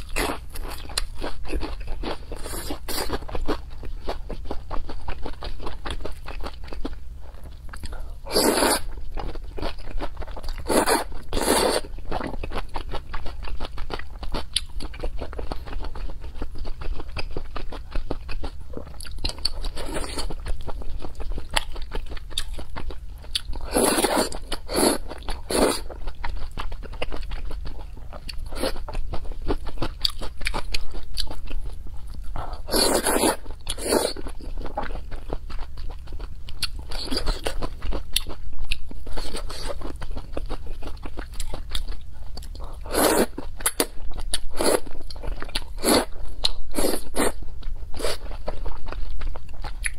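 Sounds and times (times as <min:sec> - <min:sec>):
wet chewing and mouth sounds: 0:00.0 - 0:49.9
slurping noodles: 0:08.3 - 0:08.9.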